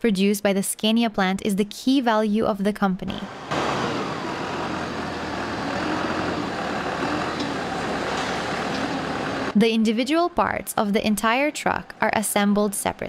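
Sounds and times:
machinery din: 0:03.2 - 0:09.6.

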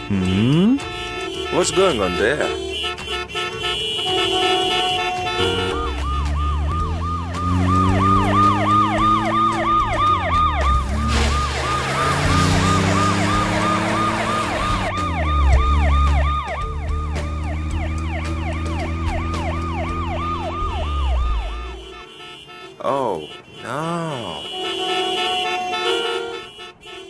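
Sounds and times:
police siren yelping: 0:05.3 - 0:21.8
car engine accelerating: 0:06.0 - 0:20.6.

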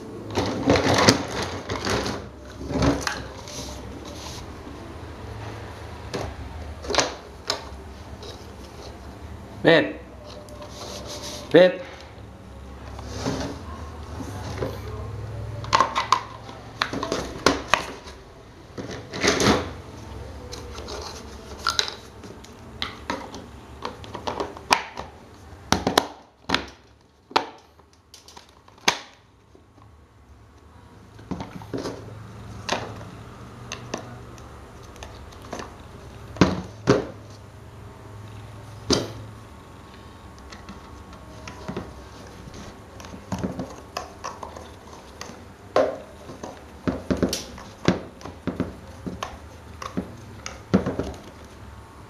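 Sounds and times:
plastic parts clicking and knocking: 0:43.0 - 0:51.6.

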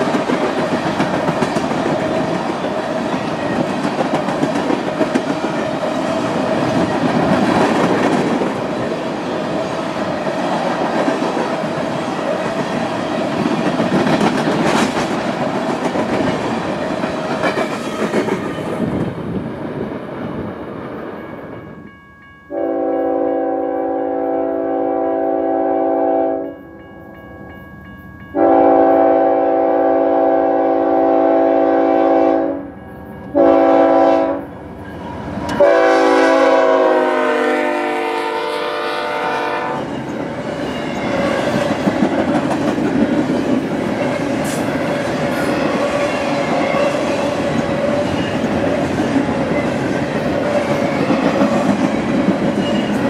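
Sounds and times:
train wheels on rails: 0:00.0 - 0:24.7, 0:26.4 - 0:53.0
locomotive air horn blasts: 0:22.5 - 0:26.6, 0:28.4 - 0:32.7, 0:33.4 - 0:34.5, 0:35.6 - 0:39.9.

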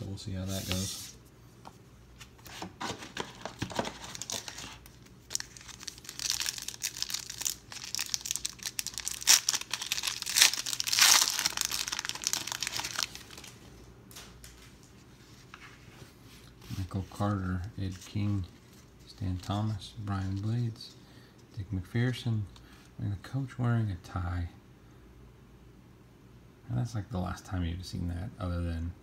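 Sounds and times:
wrapper crinkling and tearing: 0:03.1 - 0:14.6.

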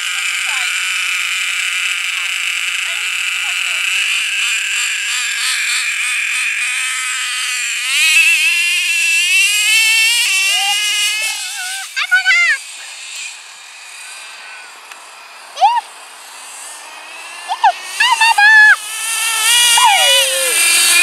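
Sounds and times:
nitro engine idling and revving: 0:00.0 - 0:21.0
engine throttle blips: 0:13.4 - 0:21.0.

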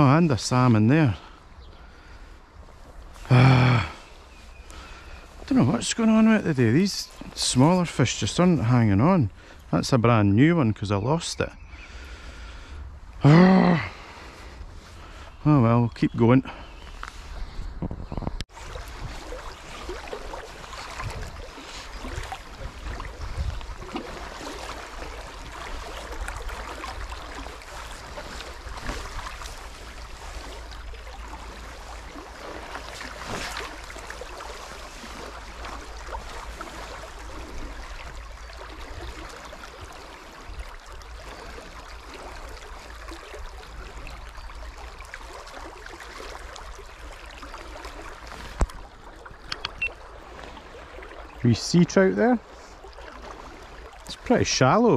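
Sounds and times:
river current rushing: 0:18.5 - 0:43.9.

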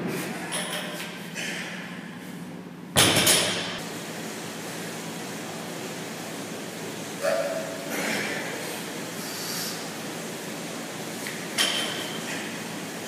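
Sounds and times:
barbell landing on gym floor: 0:03.0 - 0:03.8.

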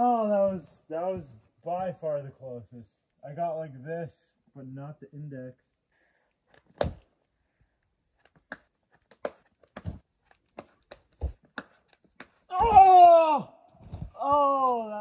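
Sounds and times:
man yelling: 0:00.0 - 0:00.8, 0:12.5 - 0:13.6, 0:14.2 - 0:15.0.

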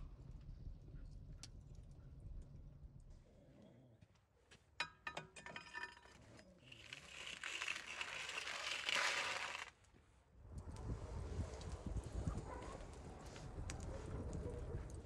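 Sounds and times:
embers raked across oven floor: 0:05.6 - 0:09.7.

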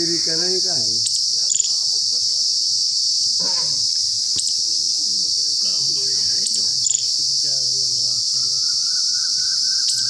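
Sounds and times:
high-pitched insect chorus: 0:00.0 - 0:10.0
faint voices: 0:04.6 - 0:10.0.

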